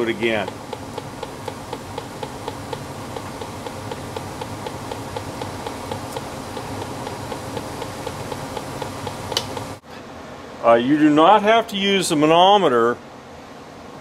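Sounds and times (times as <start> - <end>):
gas detector ticking: 0.2 - 9.8.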